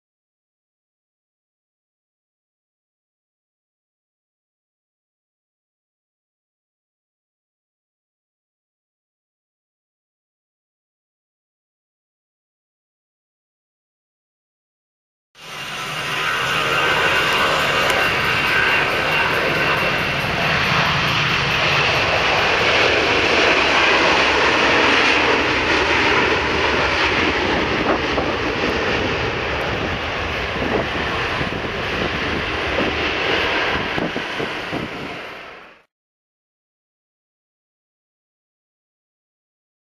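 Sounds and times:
high turbine whine: 15.4s - 35.9s
jet engines roaring: 15.4s - 35.9s.

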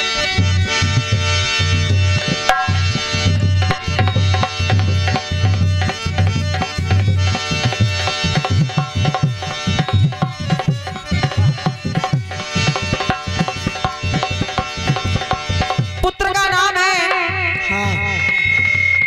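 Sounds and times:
held melody notes: 0.0s - 18.8s
fast hand drum strokes: 0.9s - 16.1s.

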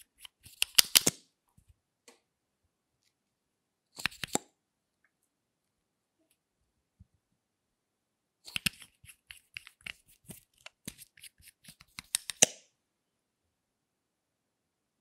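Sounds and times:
plastic tubes clicking and tapping: 11.6s - 12.5s.

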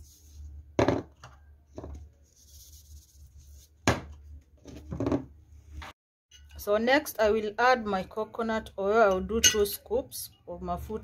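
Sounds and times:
kitchenware knocks and clicks: 0.8s - 1.2s.

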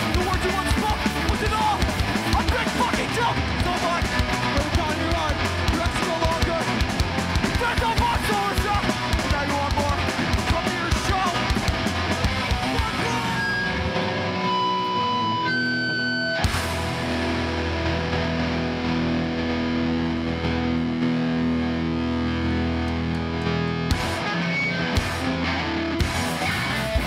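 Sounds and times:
shouted vocals: 0.0s - 6.8s
fast drums: 0.0s - 13.5s, 26.0s - 27.0s
heavy distorted chord: 0.0s - 27.0s
punk band playing live: 0.0s - 27.0s
ringing guitar tones: 0.4s - 27.0s.

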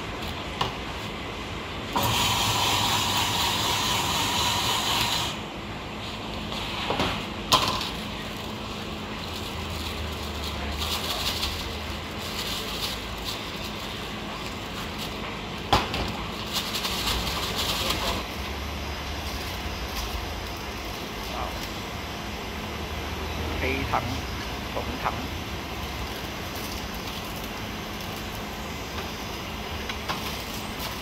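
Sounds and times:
plastic bag rustling: 7.8s - 22.2s, 25.6s - 28.8s, 30.0s - 31.0s.

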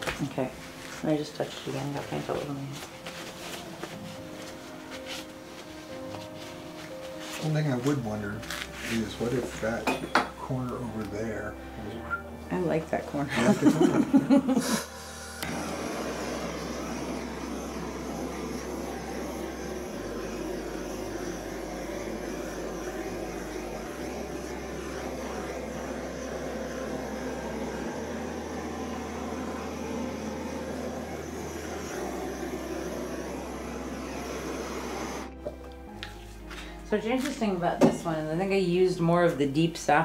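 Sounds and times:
hair dryer blowing: 12.6s - 36.2s.

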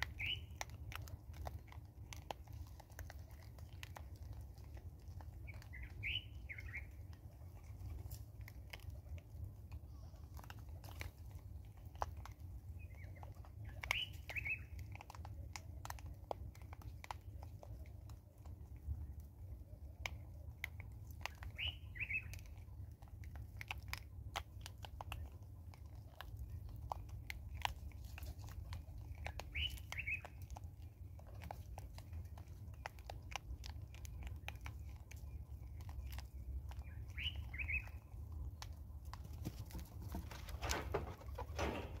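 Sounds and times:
monkeys crunching maize kernels: 0.0s - 42.0s.

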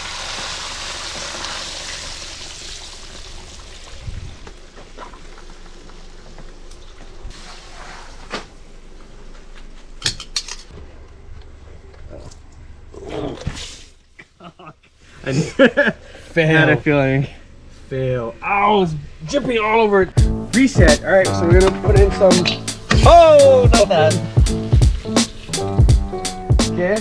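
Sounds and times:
fish sizzling in hot oil: 0.0s - 4.0s.

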